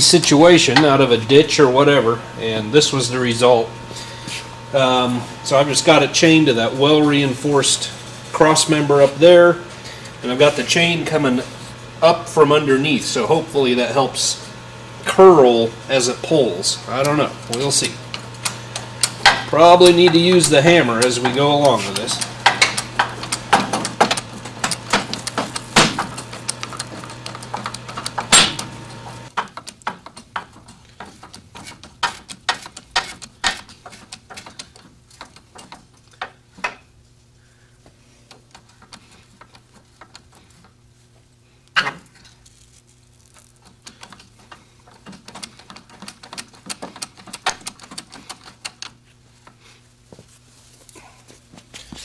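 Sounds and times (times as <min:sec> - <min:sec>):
hydraulic ram clicking: 0:17.0 - 0:36.9, 0:38.2 - 0:40.8, 0:43.3 - 0:49.6.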